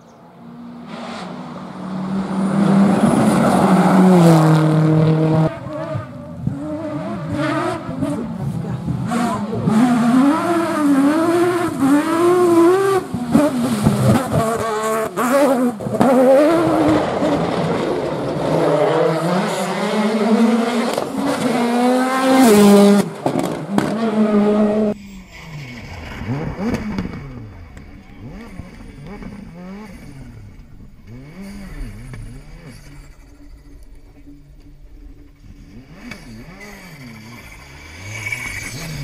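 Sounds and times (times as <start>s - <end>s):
rally car engines revving: 0.0s - 39.0s.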